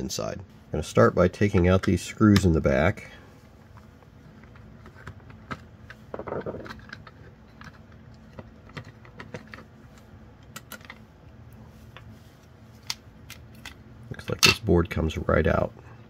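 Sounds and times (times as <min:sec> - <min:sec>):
handling noise: 0:03.5 - 0:13.8.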